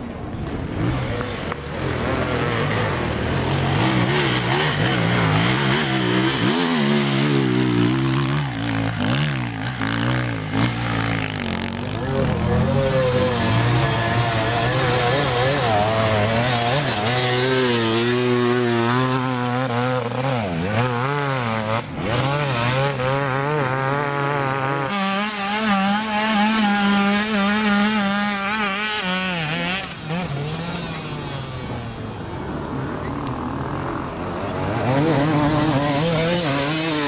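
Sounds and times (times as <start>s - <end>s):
motorcycle engines revving: 0.0s - 37.0s.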